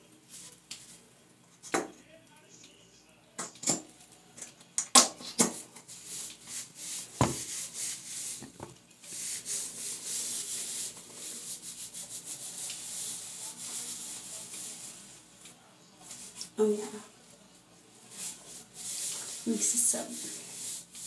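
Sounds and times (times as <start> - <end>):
rubbing and scrubbing hair: 5.8 - 21.0.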